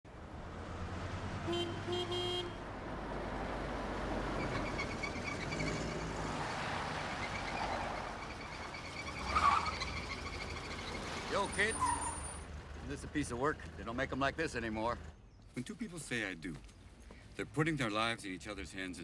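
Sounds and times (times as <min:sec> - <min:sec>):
car engines in traffic: 0:00.1 - 0:15.8
car horn toots: 0:01.4 - 0:02.6.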